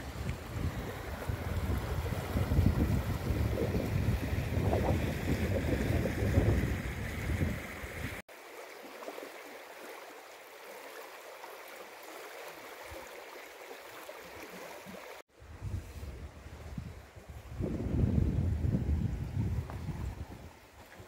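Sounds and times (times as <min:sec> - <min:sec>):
wind buffeting microphone: 0:00.0 - 0:08.2, 0:15.4 - 0:20.6.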